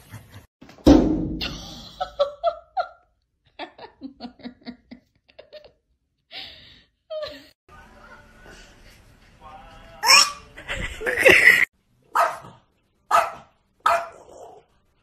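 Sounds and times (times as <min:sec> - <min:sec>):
person laughing: 0:01.4 - 0:05.8, 0:10.6 - 0:11.7.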